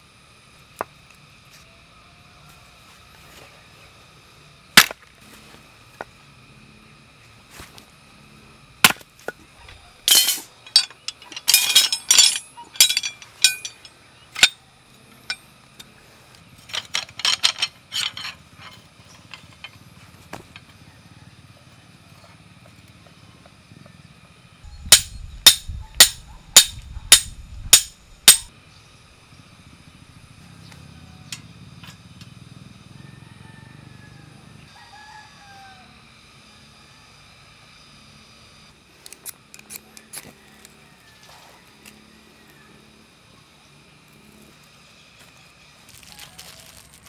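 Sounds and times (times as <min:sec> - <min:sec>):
steel grill parts clinking: 0:09.6 - 0:14.6, 0:15.2 - 0:15.9, 0:16.6 - 0:19.8, 0:24.8 - 0:28.5.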